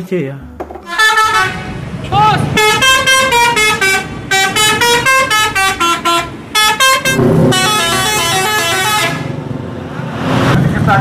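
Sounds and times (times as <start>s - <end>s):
bus musical horns playing tunes: 0.8s - 9.6s
bus engine rumble passing: 0.9s - 11.0s.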